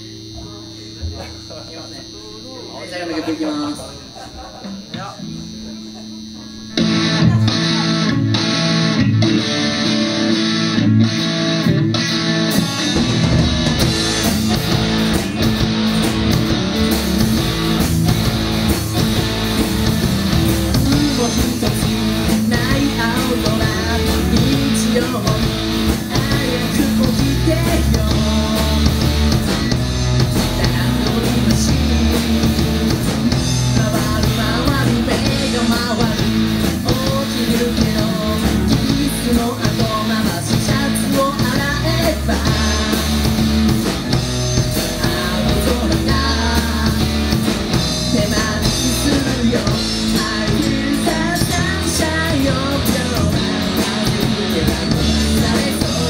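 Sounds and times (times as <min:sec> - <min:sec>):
bass guitar: 0:00.0 - 0:56.0
drums: 0:00.0 - 0:56.0
electric guitar: 0:00.0 - 0:56.0
person singing: 0:20.7 - 0:43.7, 0:44.7 - 0:56.0.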